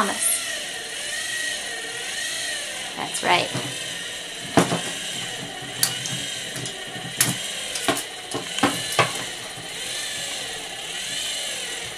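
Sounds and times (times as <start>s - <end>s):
toy trains clacking together: 3.0s - 11.9s.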